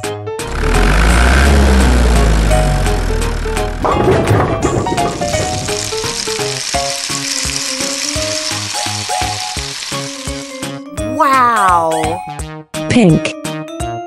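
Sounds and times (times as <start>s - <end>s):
plucked banjo music: 2.2s - 8.8s
small balls clattering: 3.8s - 10.6s.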